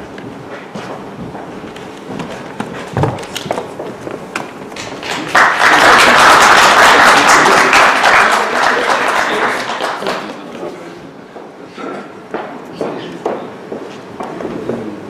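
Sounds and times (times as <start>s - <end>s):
people applauding: 4.7s - 10.7s.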